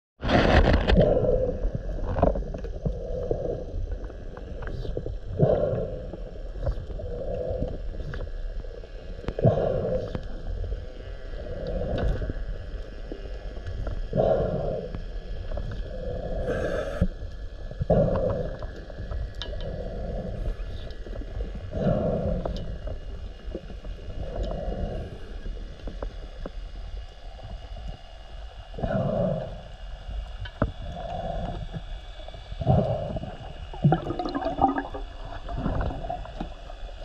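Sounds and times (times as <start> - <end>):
regulator breathing: 15.9 - 17.1
exhaled bubbles rumbling: 32.5 - 37.0.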